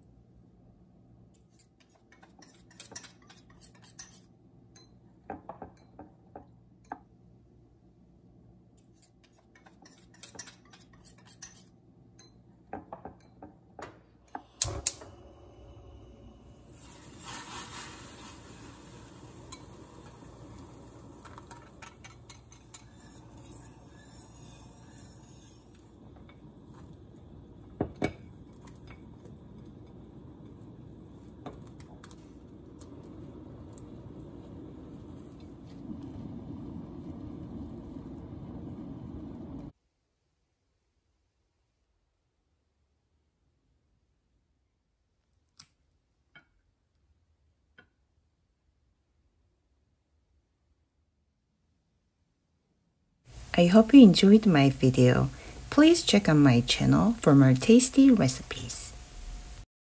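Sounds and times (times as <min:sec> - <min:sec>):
spoon scraping glass bowl: 0:01.4 - 0:05.0, 0:08.8 - 0:12.4, 0:21.4 - 0:27.0
gas burner hissing: 0:14.3 - 0:39.8, 0:53.3 - 0:59.7.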